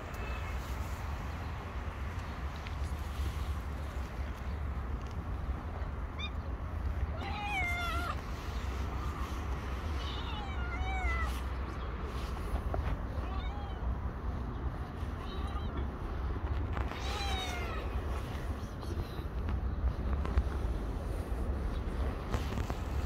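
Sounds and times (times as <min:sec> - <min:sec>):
steady low rumble: 0:00.0 - 0:23.0
cat meowing: 0:07.1 - 0:08.2, 0:09.9 - 0:11.4, 0:16.8 - 0:18.0.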